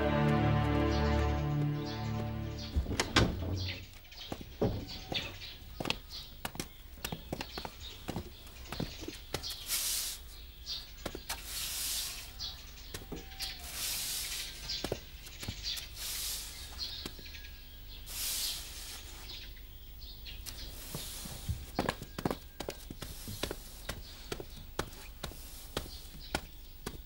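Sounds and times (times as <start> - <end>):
broom sweeping swish: 11.3 - 12.3, 13.6 - 14.6, 18.1 - 19.4.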